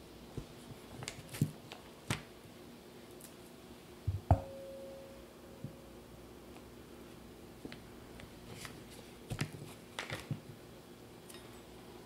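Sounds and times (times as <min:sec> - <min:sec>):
short ringing note: 0:04.4 - 0:05.3.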